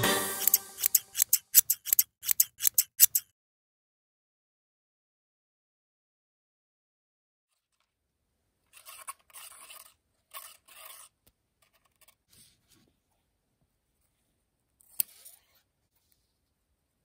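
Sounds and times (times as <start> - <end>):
scissors snipping netting: 0.4 - 3.3.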